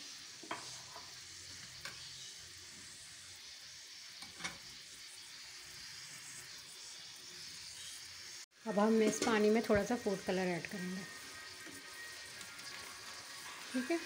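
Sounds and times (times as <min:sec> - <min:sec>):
water hissing in a heating pan: 0:00.0 - 0:14.0.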